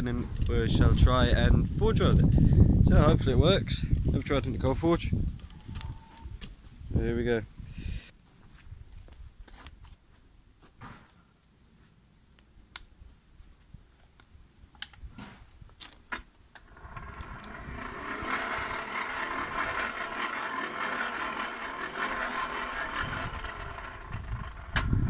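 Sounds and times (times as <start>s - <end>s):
electric blower humming: 16.6s - 25.0s.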